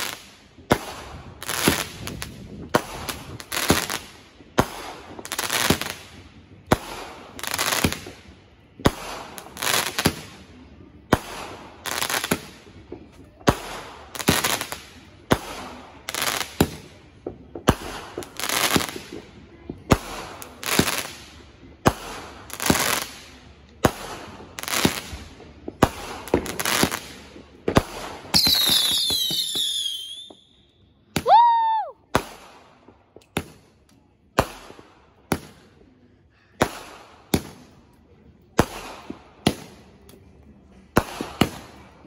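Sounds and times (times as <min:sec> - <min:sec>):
firework bangs: 0:11.1 - 0:30.4
firework whistles: 0:28.4 - 0:31.9.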